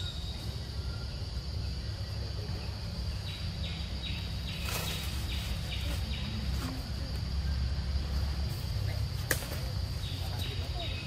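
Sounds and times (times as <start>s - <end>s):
high insect drone: 0.0s - 11.0s
leaves rustling: 2.8s - 11.0s.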